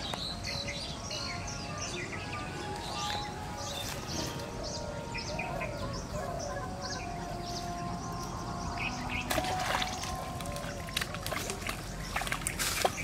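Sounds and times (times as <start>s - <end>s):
low warbling bird calls: 0.0s - 13.0s
small birds chirping: 0.0s - 13.0s
fish splashing out of water: 9.3s - 13.0s.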